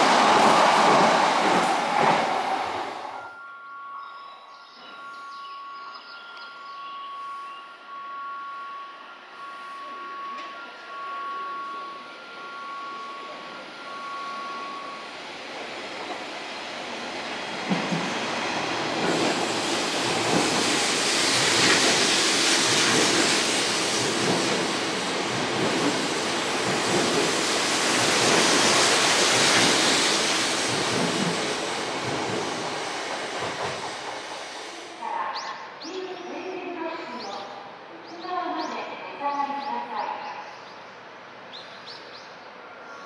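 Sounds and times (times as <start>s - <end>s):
train wheels rumbling on rail: 0.0s - 3.3s, 9.8s - 36.0s.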